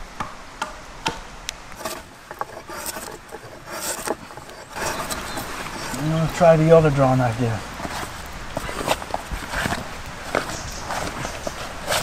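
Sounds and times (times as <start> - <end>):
tool scraping wood: 1.7 - 7.1, 7.8 - 12.0.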